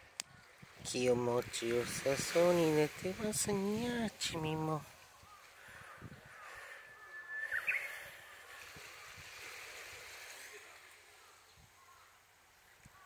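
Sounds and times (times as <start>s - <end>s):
faint outdoor background noise: 0.0s - 13.0s
whistled bird call: 6.7s - 8.6s.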